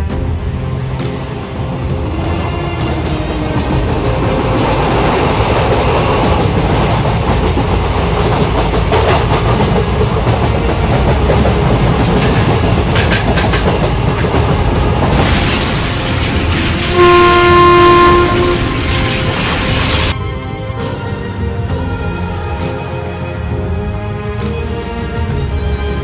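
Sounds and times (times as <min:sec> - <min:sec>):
train rumbling: 0:00.0 - 0:26.0
wheels clacking over rails: 0:02.7 - 0:17.0.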